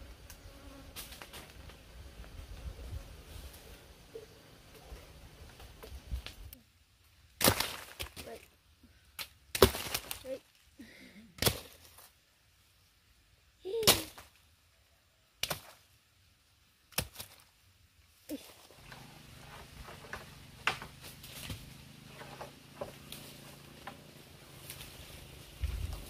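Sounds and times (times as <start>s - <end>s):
fruit thudding onto leaf litter: 7.4s - 8.4s, 9.6s - 10.4s.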